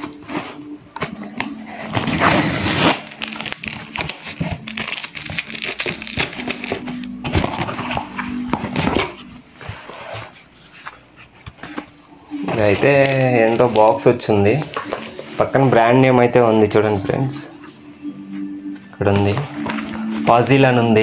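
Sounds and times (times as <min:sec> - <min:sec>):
packaging tearing and crinkling: 0:01.8 - 0:08.0.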